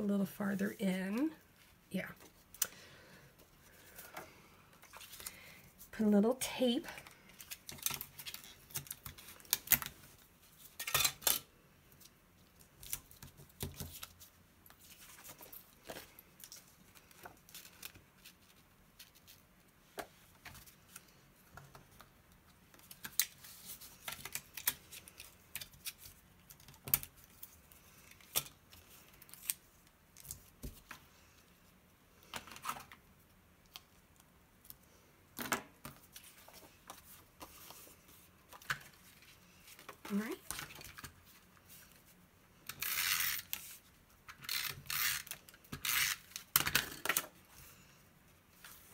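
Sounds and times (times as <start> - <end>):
sticky tape tearing from dispenser: 42.7 - 43.6, 44.4 - 46.6.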